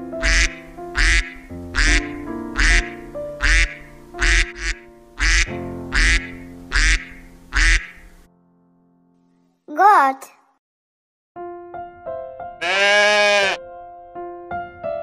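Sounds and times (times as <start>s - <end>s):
background music with low beat: 0.2s - 8.0s
duck quacking: 0.2s - 8.2s, 12.6s - 13.6s.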